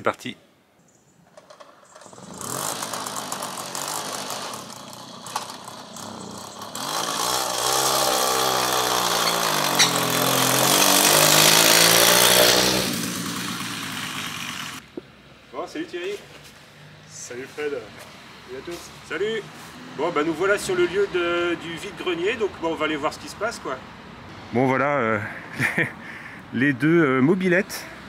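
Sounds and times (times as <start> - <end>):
moped engine revving: 1.6 - 14.9.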